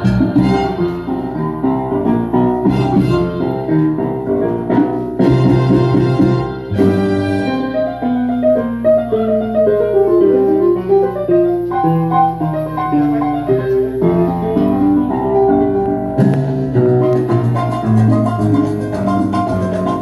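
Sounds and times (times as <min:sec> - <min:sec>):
drums and percussion: 0:00.0 - 0:01.2, 0:04.5 - 0:07.5, 0:16.2 - 0:20.0
salsa piano solo: 0:00.0 - 0:20.0.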